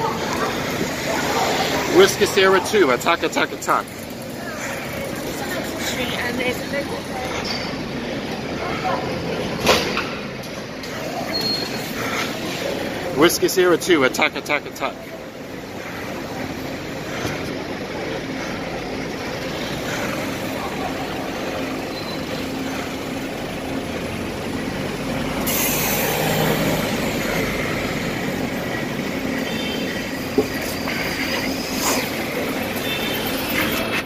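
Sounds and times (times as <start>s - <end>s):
engine hum and traffic: 0.0s - 34.0s
air brake hiss: 25.4s - 26.4s.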